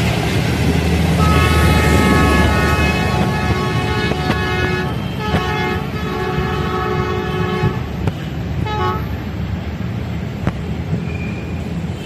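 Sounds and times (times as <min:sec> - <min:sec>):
train rumbling: 0:00.0 - 0:11.0
locomotive horn blasts: 0:01.2 - 0:07.9.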